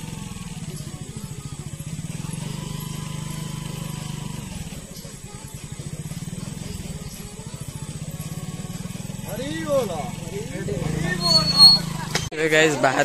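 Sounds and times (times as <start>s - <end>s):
engine running with low putter: 0.0s - 12.3s.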